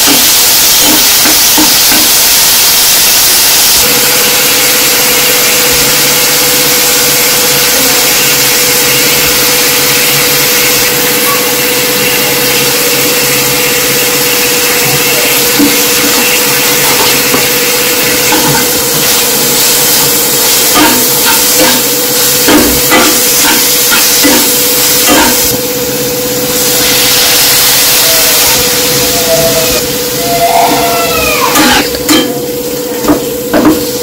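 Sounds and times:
food sizzling in oil: 0.0 - 34.0
steady hum: 0.0 - 34.0
spatula scraping and tapping pan: 15.6 - 19.2.

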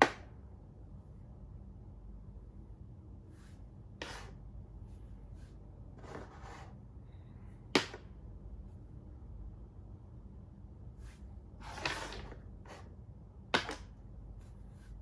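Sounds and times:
chess pieces tapping on board: 13.6 - 13.9.

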